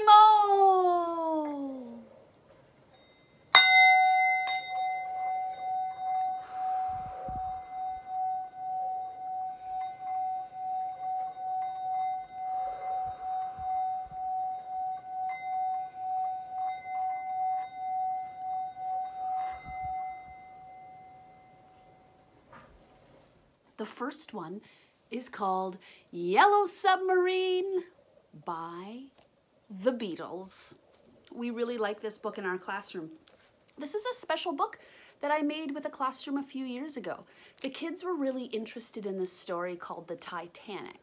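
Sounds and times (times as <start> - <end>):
singing bowl struck: 2.9 - 22.0
singing bowl ringing tone: 2.9 - 22.7.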